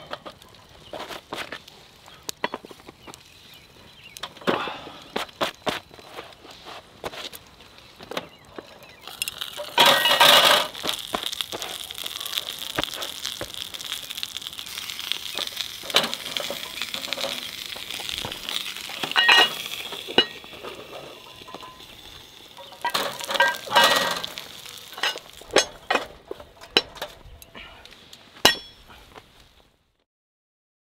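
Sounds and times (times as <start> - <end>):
iron pans clinking on grill grate: 0.0 - 3.3, 4.2 - 7.4, 8.0 - 27.7, 28.4 - 29.0
meat and onions sizzling in a pan: 7.7 - 26.0.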